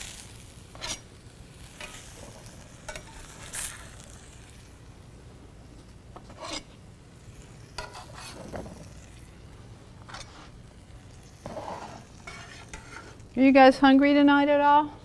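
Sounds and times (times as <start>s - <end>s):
spatula scraping pan: 0.0s - 4.8s, 6.2s - 9.4s, 10.0s - 13.4s
food sizzling in skillet: 0.0s - 14.5s.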